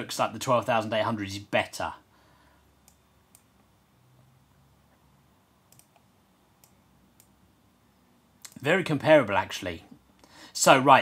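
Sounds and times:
faint computer clicks: 5.7s - 7.4s, 8.4s - 8.6s.

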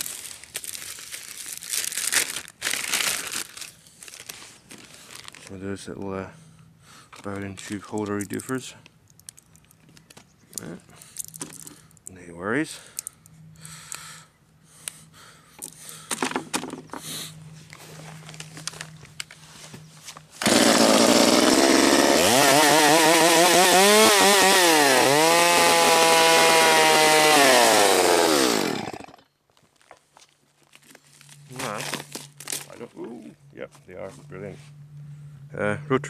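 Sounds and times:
chainsaw running: 20.4s - 29.3s.

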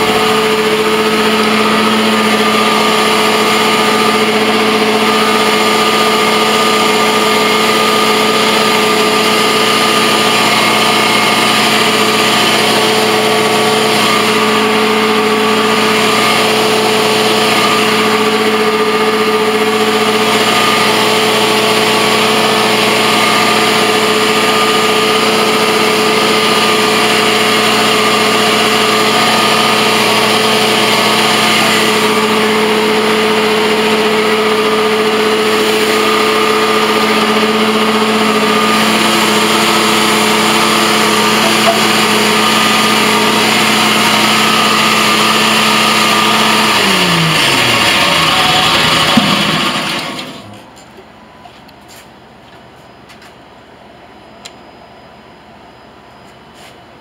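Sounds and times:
carpet cleaning machine engine running: 0.0s - 51.3s.

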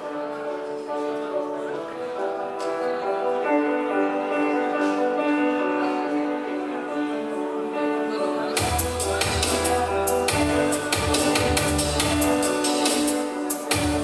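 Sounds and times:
melody of held notes: 0.0s - 14.0s
bass line: 8.6s - 13.1s.

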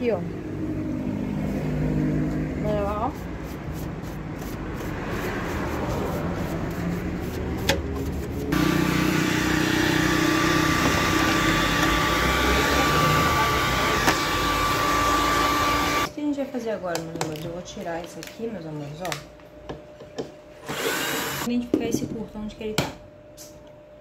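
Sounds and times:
paintbrush scrubbing metal: 2.7s - 8.6s
electric blower whining: 8.4s - 16.1s, 20.6s - 21.5s.

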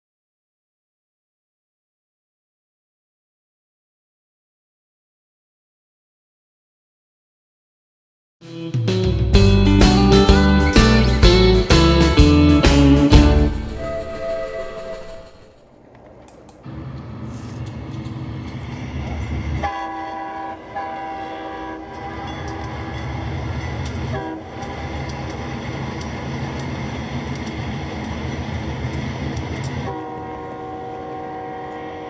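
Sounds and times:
locomotive engine rumble: 9.3s - 32.0s
train air horn chord: 10.9s - 15.6s, 19.6s - 23.3s, 24.0s - 25.3s, 29.8s - 32.0s.

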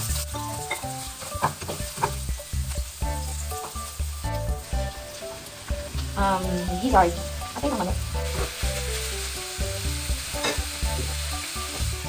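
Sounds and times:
food sizzling in oil: 0.0s - 12.0s
spatula scraping and tapping pan: 0.1s - 2.5s, 3.4s - 5.2s, 10.4s - 11.8s.

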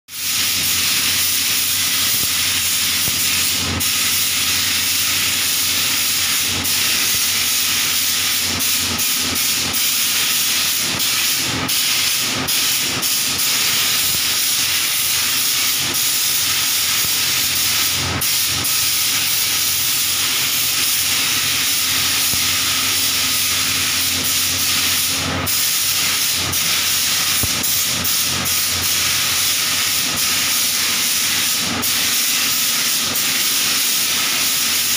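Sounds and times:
paint spray gun hissing: 0.1s - 34.9s.

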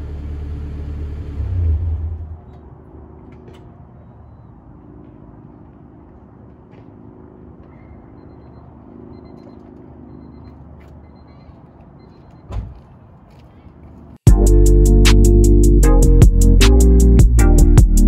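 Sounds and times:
car engine idling: 0.0s - 2.6s.

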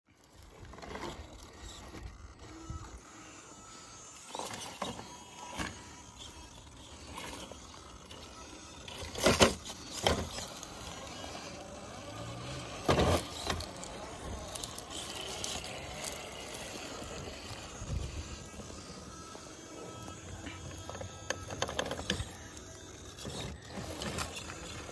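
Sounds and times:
small electric motor whirring: 0.1s - 24.9s
knocks and scrapes on rock: 8.9s - 11.5s.

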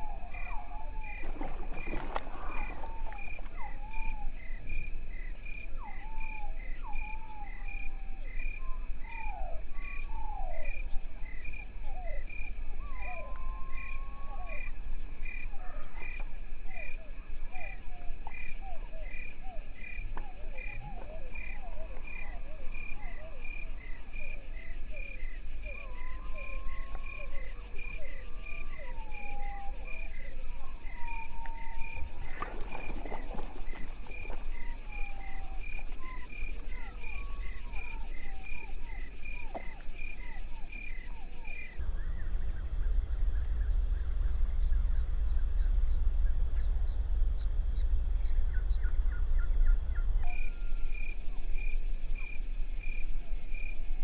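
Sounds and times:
frogs calling: 0.0s - 51.1s
insects chirping: 0.0s - 53.0s
water splash: 1.2s - 3.6s
low rumble: 41.8s - 50.3s.

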